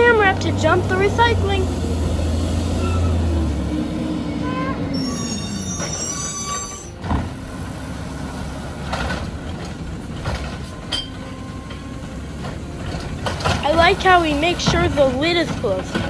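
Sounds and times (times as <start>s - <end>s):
recycling truck idling: 0.0s - 16.0s
high squeal: 2.7s - 3.5s, 4.2s - 8.5s
cart clattering: 4.4s - 16.0s.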